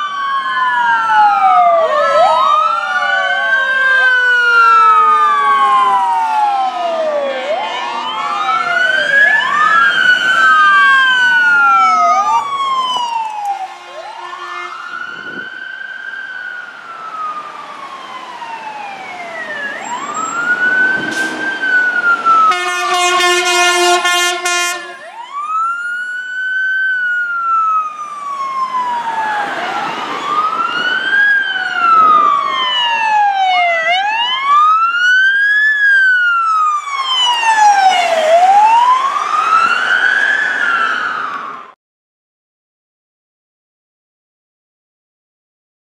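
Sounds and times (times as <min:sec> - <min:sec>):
fire engine sirens wailing: 0:00.0 - 0:41.8
horn blast: 0:13.6 - 0:14.8, 0:22.4 - 0:25.1.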